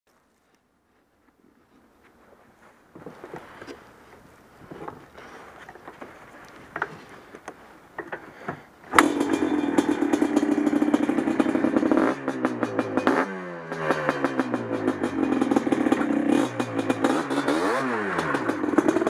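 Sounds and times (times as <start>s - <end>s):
two-stroke engine running: 8.9s - 19.0s.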